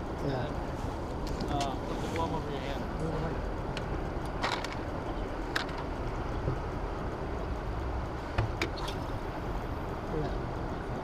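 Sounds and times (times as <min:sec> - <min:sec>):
wind: 0:00.0 - 0:11.0
churning water: 0:08.4 - 0:09.5.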